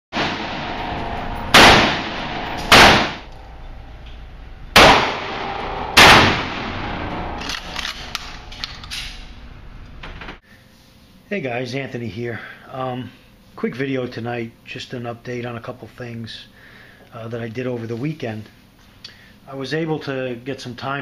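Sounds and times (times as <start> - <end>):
gunshots ringing indoors: 0.2 - 3.6, 4.7 - 9.3.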